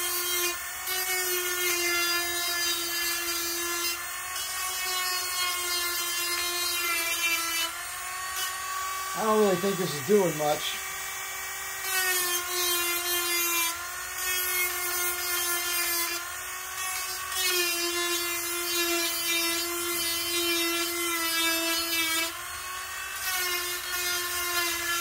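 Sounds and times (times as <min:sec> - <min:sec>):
rotary tool whining: 0:00.0 - 0:19.8
sanding drum grinding steel: 0:08.3 - 0:10.8.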